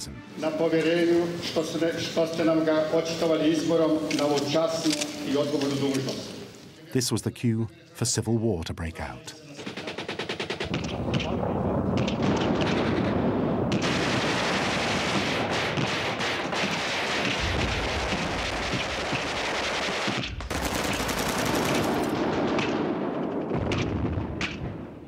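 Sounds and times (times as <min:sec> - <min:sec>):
automatic gunfire: 0:09.6 - 0:24.8.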